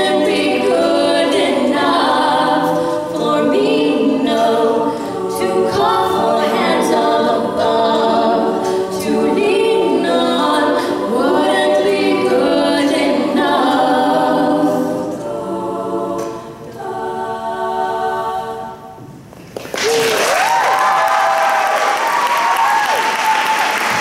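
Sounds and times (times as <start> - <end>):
women singing a cappella: 0.0 - 19.2.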